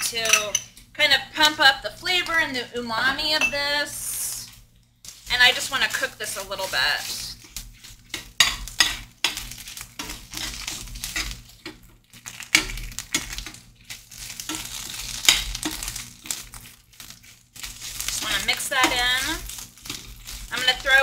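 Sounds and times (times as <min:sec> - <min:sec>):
food sizzling in a pan: 0:00.0 - 0:21.0
metal spoon scraping a pan: 0:05.4 - 0:21.0.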